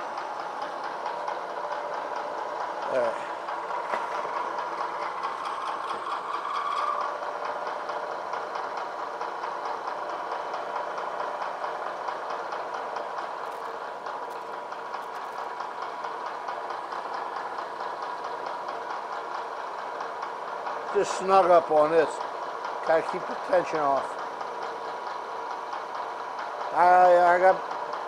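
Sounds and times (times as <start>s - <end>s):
milling machine cutting metal: 0.0s - 18.7s.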